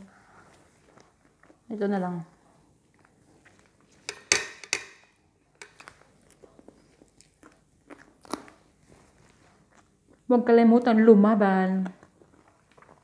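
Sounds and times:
wet chewing and mouth smacks: 0:05.6 - 0:10.3, 0:11.8 - 0:13.0.

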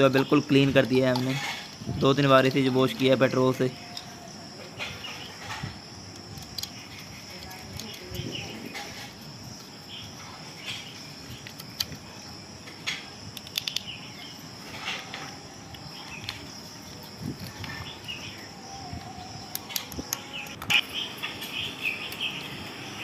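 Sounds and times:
insects chirring: 0:00.0 - 0:23.0
screwdriver clicking on screws: 0:06.2 - 0:08.2, 0:13.4 - 0:13.9.

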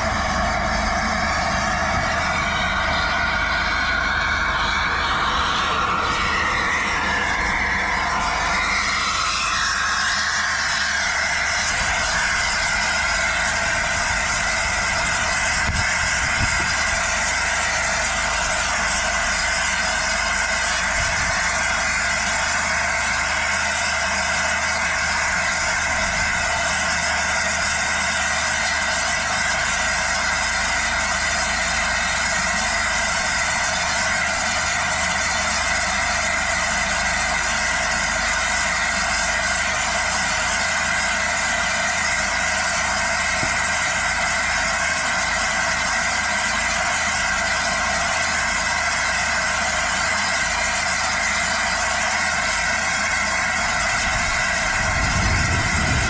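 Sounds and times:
low hum: 0:00.0 - 0:22.5, 0:53.2 - 0:56.0
steam hissing: 0:00.0 - 0:56.0.

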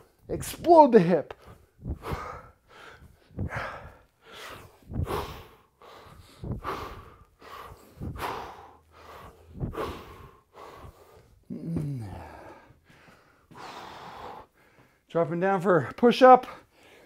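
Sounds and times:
man exhaling forcefully: 0:01.8 - 0:12.7, 0:13.5 - 0:14.5
short falling vocal sound: 0:11.5 - 0:12.4.

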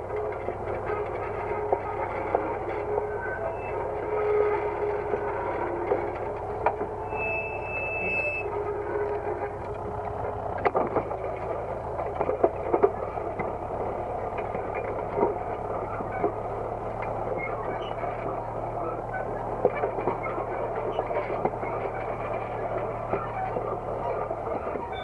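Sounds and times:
tractor engine running: 0:00.0 - 0:25.0
harrow discs clattering: 0:08.3 - 0:18.6.

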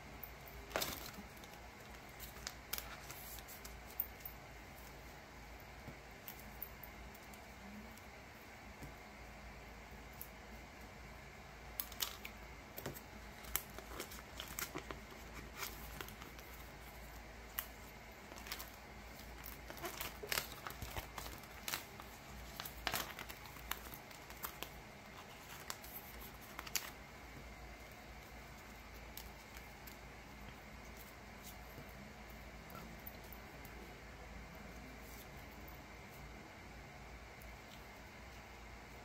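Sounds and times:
plastic sleeves crinkling: 0:00.5 - 0:04.9, 0:11.7 - 0:31.8.

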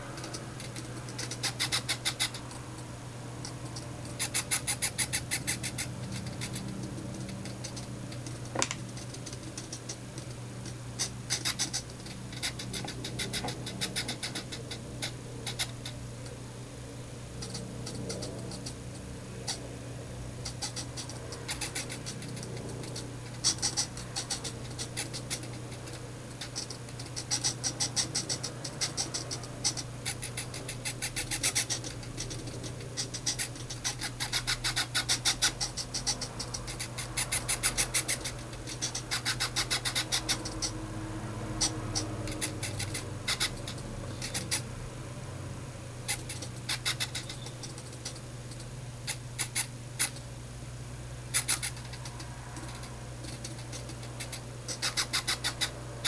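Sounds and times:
servos buzzing and clicking: 0:00.0 - 0:16.3, 0:41.4 - 0:44.8, 0:46.0 - 0:50.3, 0:51.3 - 0:55.8
steady low hum: 0:00.0 - 0:56.0.

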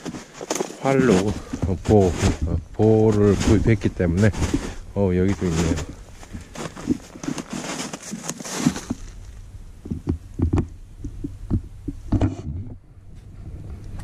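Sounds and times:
footsteps crunching through snow: 0:00.0 - 0:10.0.

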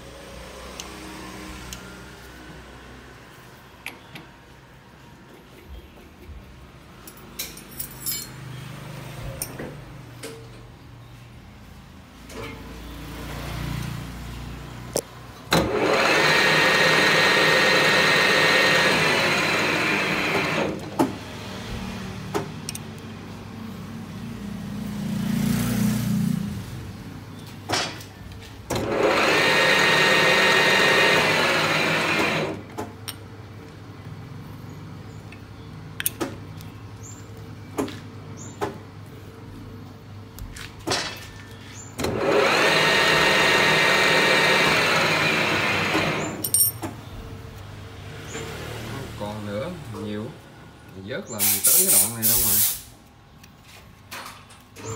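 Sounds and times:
lathe spindle whining: 0:15.6 - 0:20.8, 0:28.8 - 0:32.6, 0:42.0 - 0:46.4.

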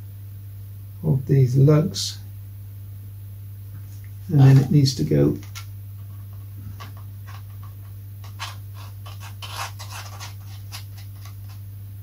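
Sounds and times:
steady low hum: 0:00.0 - 0:12.0
marker pen scratching on foam: 0:06.1 - 0:11.6.

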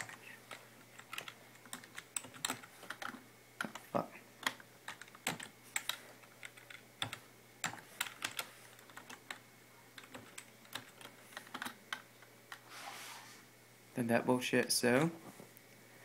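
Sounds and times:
computer keyboard typing clicks: 0:00.0 - 0:03.8, 0:04.4 - 0:09.4, 0:10.0 - 0:12.6.

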